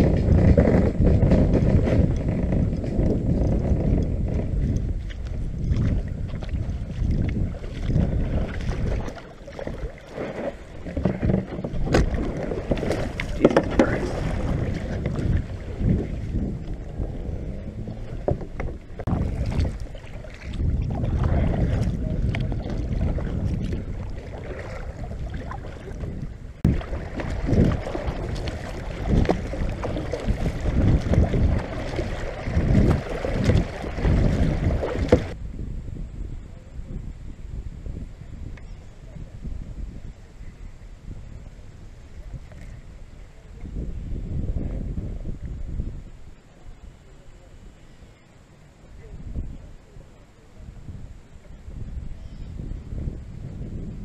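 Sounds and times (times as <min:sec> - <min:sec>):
paddle splashing in water: 0:00.0 - 0:35.4
wind on microphone: 0:00.0 - 0:54.0.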